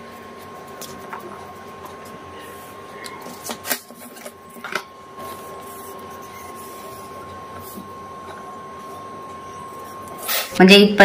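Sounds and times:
faint steady whine: 0.0s - 11.0s
paper rustling and scraping: 5.2s - 7.9s.

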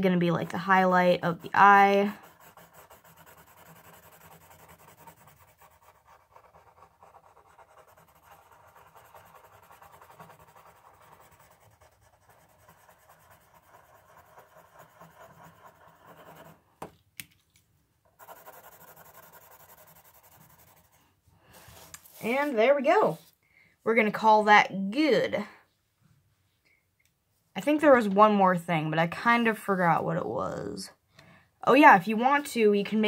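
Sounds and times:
pencil scratching on paper: 0.4s - 16.6s, 18.2s - 23.3s.

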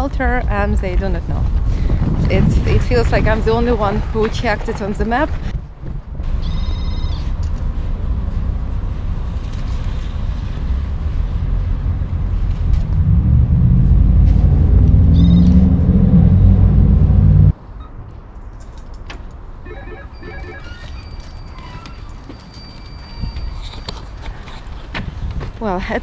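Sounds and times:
steady low rumble: 0.0s - 6.4s, 7.2s - 17.9s
electronic beeps: 19.6s - 21.3s
door intercom call tone: 19.7s - 21.8s.

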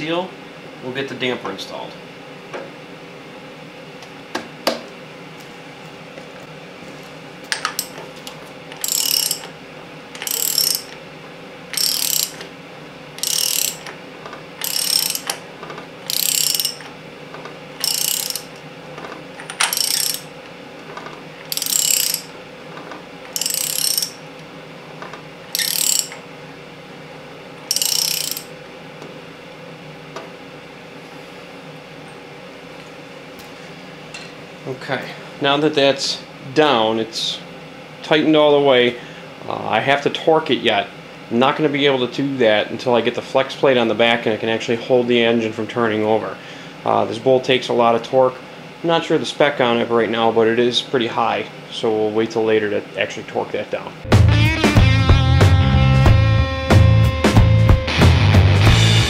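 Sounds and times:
socket ratchet clicking: 8.8s - 9.5s, 10.2s - 10.9s, 11.7s - 12.4s, 13.2s - 13.9s, 14.6s - 15.4s, 16.1s - 16.9s, 17.8s - 18.6s, 19.4s - 20.3s, 21.5s - 22.3s, 23.3s - 24.2s, 25.5s - 26.2s, 27.7s - 28.5s.

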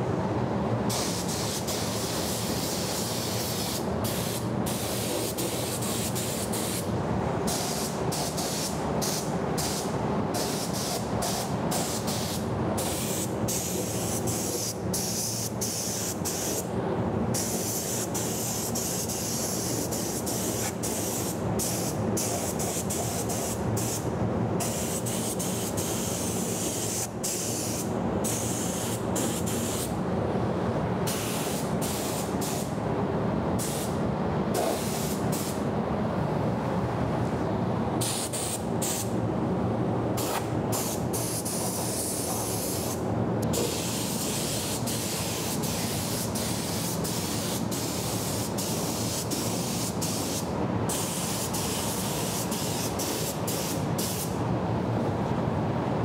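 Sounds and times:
spray gun hissing: 0.9s - 6.9s, 7.5s - 16.7s, 17.4s - 24.0s, 24.6s - 29.9s, 34.7s - 35.6s, 40.2s - 54.3s.

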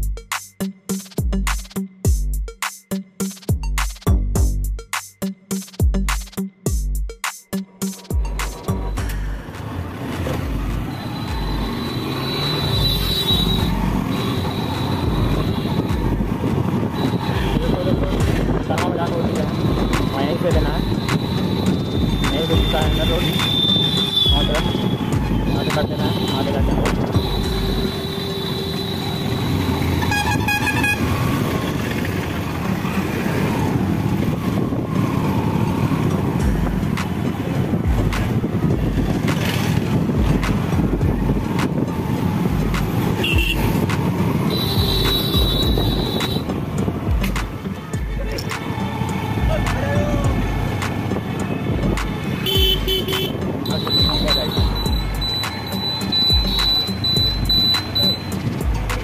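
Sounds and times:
road noise: 0.0s - 59.0s
motorcycle engine: 8.2s - 59.0s
vehicle horn short toots: 12.0s - 15.9s, 23.2s - 25.0s, 26.0s - 31.1s, 43.2s - 43.8s, 44.5s - 46.5s, 52.3s - 58.4s
wind buffeting microphone: 13.6s - 26.0s, 29.6s - 54.8s.

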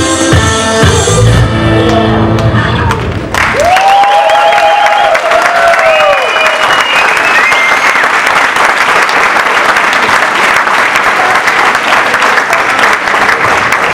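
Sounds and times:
dance music: 0.0s - 3.2s
audience applauding: 2.9s - 13.9s.

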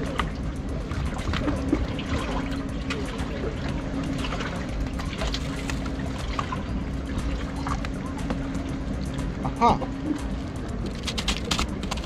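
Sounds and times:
low engine hum: 0.0s - 12.0s
water lapping against boat hull: 0.0s - 12.0s.

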